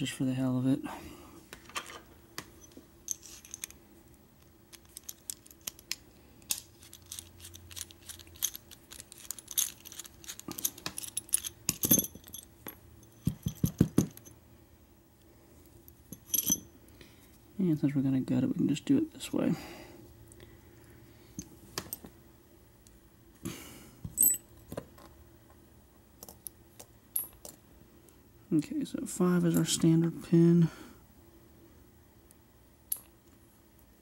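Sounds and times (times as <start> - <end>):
small metallic clicks and rattles: 4.4 - 14.3.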